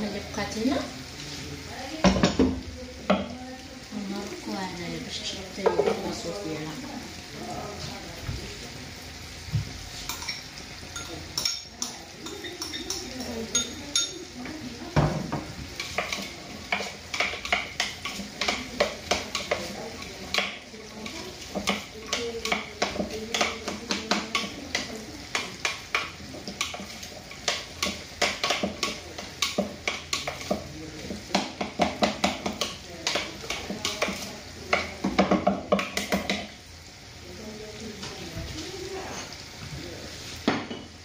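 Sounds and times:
spoon clinking against glass bowl: 0:10.1 - 0:14.2.

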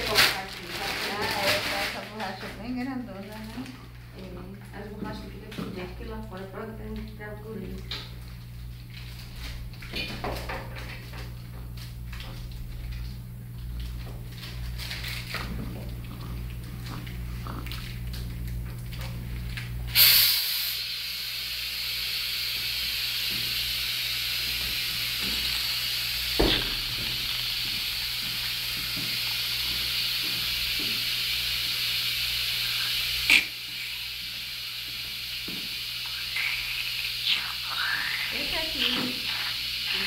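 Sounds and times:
suction unit hissing: 0:00.0 - 0:40.0.

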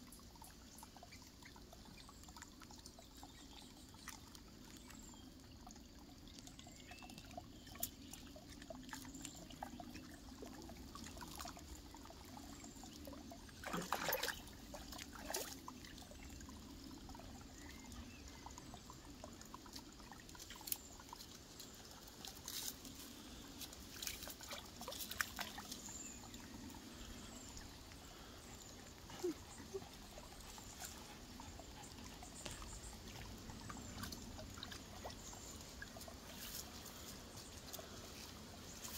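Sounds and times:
dogs splashing in water: 0:13.4 - 0:16.0, 0:23.8 - 0:26.2, 0:28.8 - 0:37.8.

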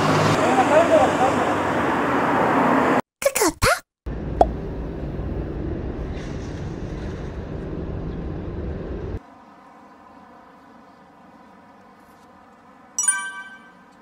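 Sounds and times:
street rumble with hiss: 0:04.1 - 0:13.0.

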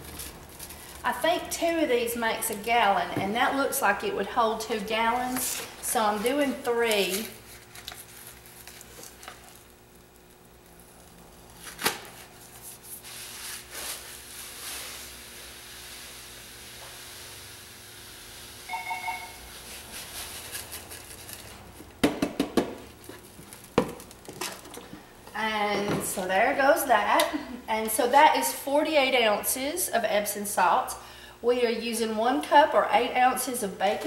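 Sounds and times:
salt pouring hiss: 0:13.0 - 0:20.5.

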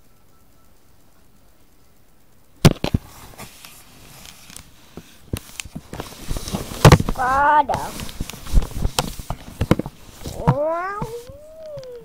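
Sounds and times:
rubbing on a phone: 0:03.0 - 0:12.0.

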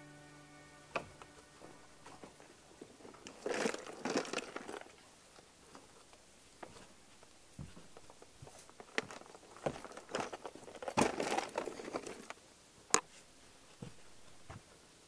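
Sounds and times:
cooler set down: 0:01.0 - 0:05.0, 0:08.9 - 0:12.3
rustling and crinkling: 0:01.0 - 0:15.0
footsteps on boat deck: 0:05.7 - 0:11.4, 0:13.6 - 0:14.7.

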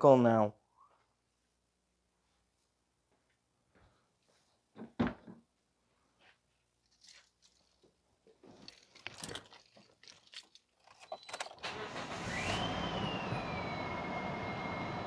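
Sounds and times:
car engine starting and idling: 0:11.2 - 0:15.0.

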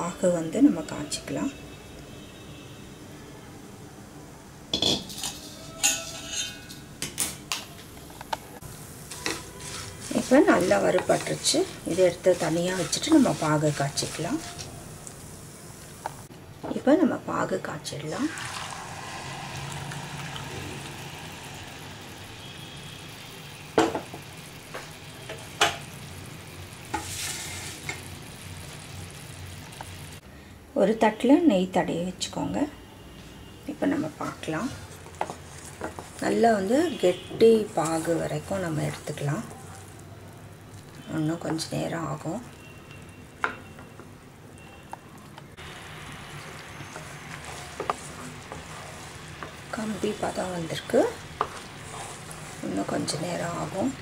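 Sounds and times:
syrup sizzling and bubbling in pan: 0:08.6 - 0:16.3, 0:18.1 - 0:30.2, 0:34.1 - 0:54.0.

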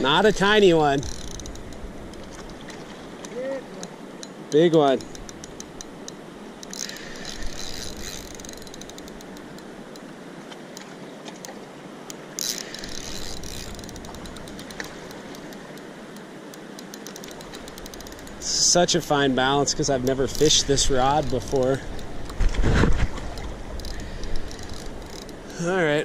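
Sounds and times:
fishing reel clicking: 0:00.1 - 0:02.6, 0:05.0 - 0:10.1, 0:12.1 - 0:18.7, 0:20.0 - 0:22.4, 0:23.3 - 0:25.6.

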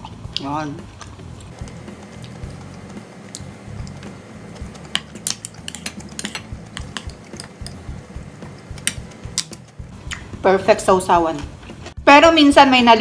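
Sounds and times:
chewing with wet mouth clicks: 0:00.0 - 0:07.8, 0:08.4 - 0:10.3.

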